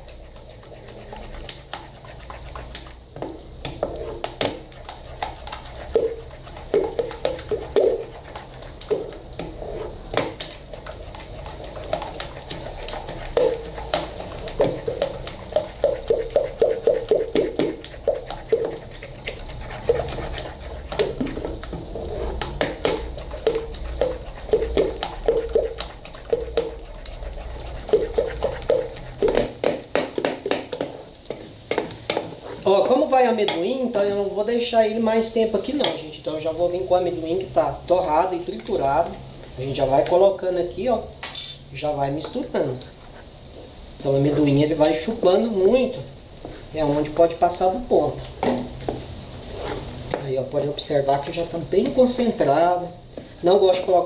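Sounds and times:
spoon scraping and knocking metal pot: 0.0s - 33.8s.

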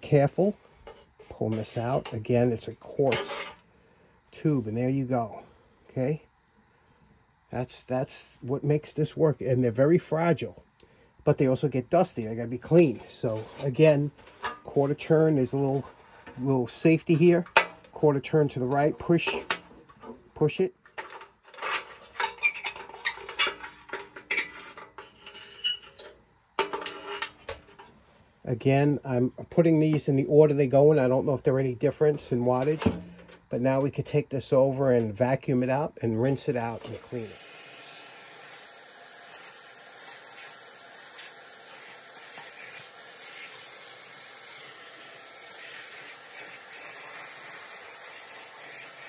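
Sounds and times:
clicks and scrapes of metal and glass: 0.6s - 2.2s, 3.0s - 3.7s, 12.8s - 18.0s, 18.7s - 28.2s, 32.5s - 33.5s, 36.2s - 48.1s
vacuum cleaner running: 36.9s - 49.0s.

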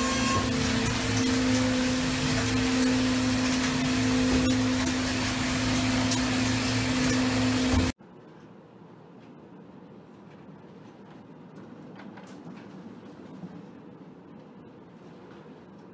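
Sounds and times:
loud machinery noise: 0.0s - 8.0s.

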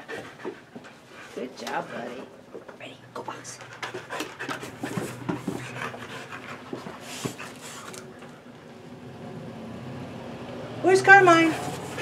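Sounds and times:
dog panting: 0.0s - 2.4s, 3.2s - 8.0s.

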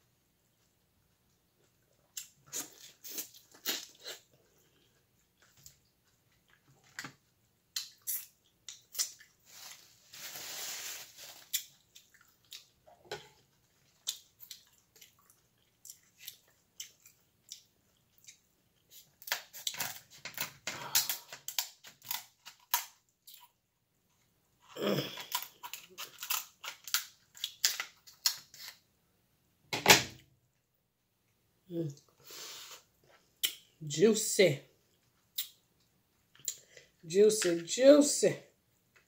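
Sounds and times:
chewing on corn: 11.4s - 20.1s
kitchen shears cracking crab shell: 19.2s - 23.0s, 25.2s - 28.8s
noisy hiss: 31.8s - 33.0s.

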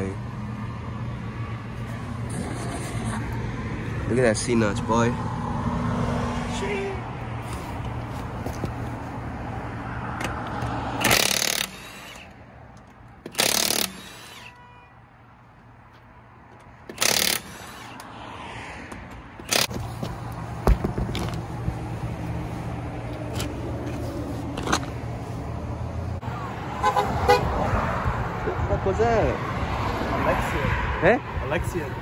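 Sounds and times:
impact wrench bursts: 11.0s - 12.3s, 13.2s - 14.6s, 16.8s - 18.1s, 19.0s - 19.8s.

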